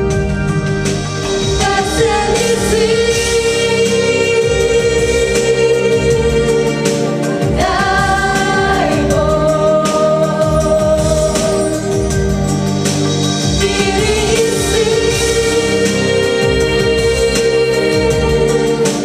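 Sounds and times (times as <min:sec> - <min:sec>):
instrumental accompaniment: 0:00.0 - 0:19.0
girls singing together: 0:01.6 - 0:11.6.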